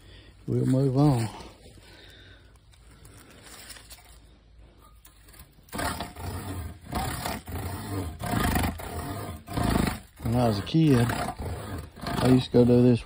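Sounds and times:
wooden stake rubbed buzzing: 0:05.0 - 0:13.0.

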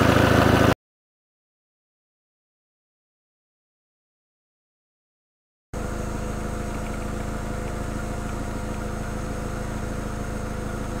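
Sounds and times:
car engine idling: 0:00.0 - 0:00.7, 0:05.8 - 0:11.0.

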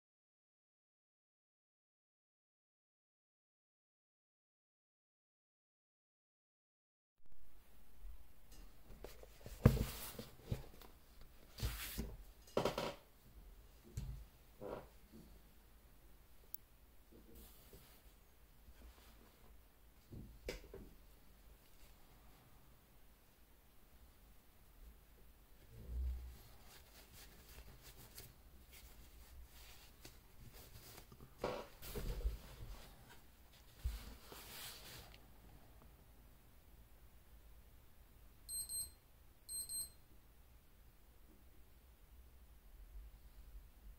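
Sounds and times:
glove rubbing: 0:26.3 - 0:35.2.

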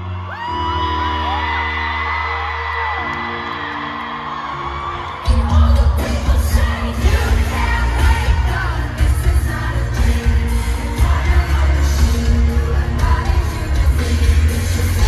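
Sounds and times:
live pop music loud: 0:00.0 - 0:15.0
woman singing: 0:05.2 - 0:15.0.

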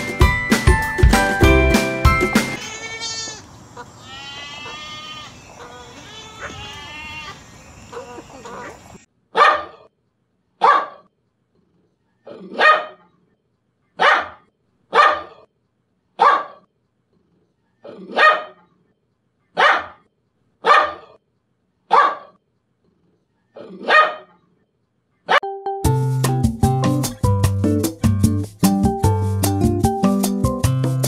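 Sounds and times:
dog barking: 0:06.4 - 0:06.7, 0:07.9 - 0:09.9, 0:10.6 - 0:11.1, 0:12.3 - 0:13.1, 0:14.0 - 0:15.5, 0:16.2 - 0:16.7, 0:17.8 - 0:18.7, 0:19.5 - 0:21.2, 0:21.9 - 0:22.4, 0:23.6 - 0:24.4, 0:25.2 - 0:25.4.

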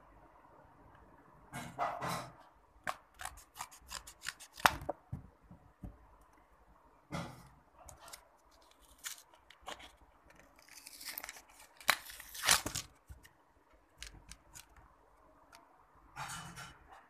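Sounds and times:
packaging rustling and crinkling: 0:07.9 - 0:13.3
loud packaging rip: 0:10.6 - 0:13.0.

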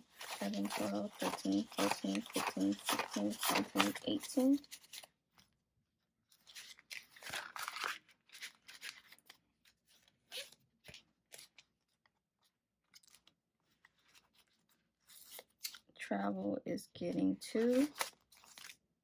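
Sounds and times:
paper bills being handled: 0:00.0 - 0:05.1, 0:06.3 - 0:15.9, 0:17.2 - 0:18.9
plastic pouches crinkling: 0:00.0 - 0:05.1, 0:06.4 - 0:09.4, 0:17.6 - 0:18.8.

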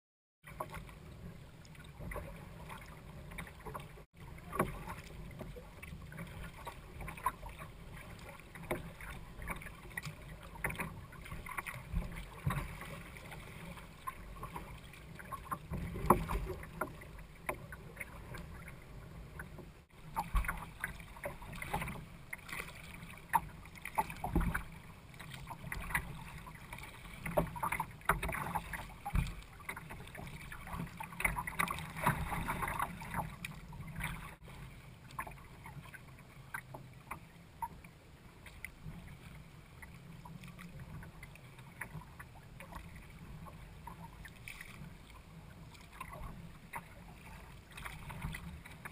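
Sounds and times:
water slapping against boat: 0:00.4 - 0:48.9.

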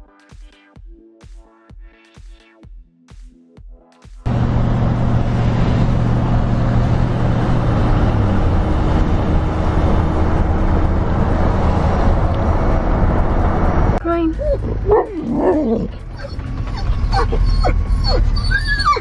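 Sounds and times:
wind rushing: 0:04.3 - 0:14.0
low engine hum: 0:04.3 - 0:19.0
road noise: 0:04.3 - 0:19.0.

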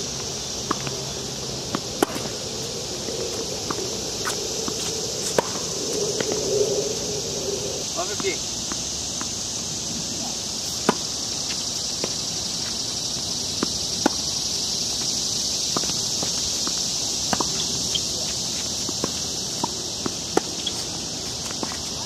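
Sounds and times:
insects droning: 0:00.0 - 0:22.0
tennis ball hits and bounces: 0:01.7 - 0:02.4, 0:03.6 - 0:06.3, 0:13.6 - 0:14.3, 0:15.7 - 0:21.9
footsteps scuffing: 0:03.8 - 0:05.6.

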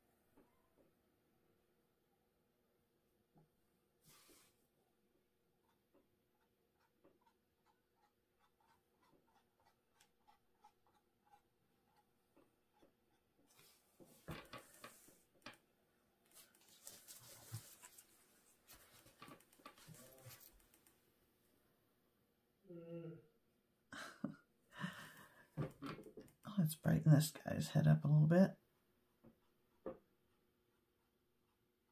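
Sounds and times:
paintbrush dabbing on canvas: 0:05.6 - 0:15.3
rustling and clicking: 0:16.3 - 0:21.0.

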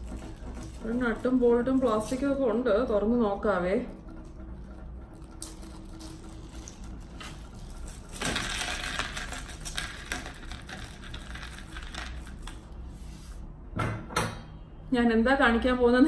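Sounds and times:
plastic crackling: 0:00.0 - 0:03.0, 0:04.2 - 0:12.8
plastic packet crinkling: 0:05.2 - 0:12.6.

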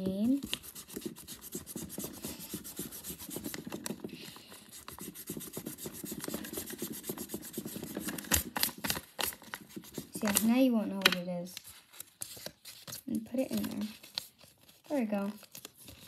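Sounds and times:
eraser rubbing on paper: 0:00.2 - 0:08.6.

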